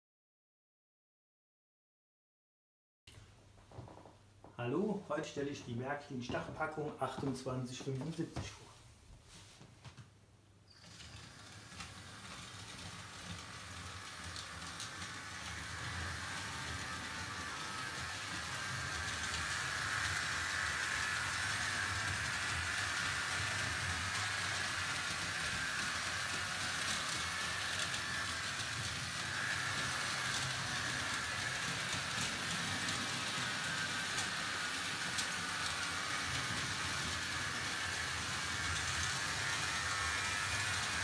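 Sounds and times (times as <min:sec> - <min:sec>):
model train motor whirring: 0:10.7 - 0:41.0
wheels rumbling on rails: 0:10.9 - 0:41.0.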